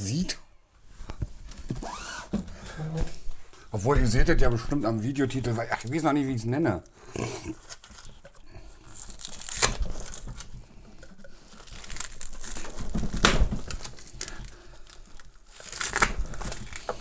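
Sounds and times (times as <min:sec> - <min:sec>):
plastic film crinkling: 0:07.5 - 0:17.0
plastic film ripping: 0:07.6 - 0:17.0.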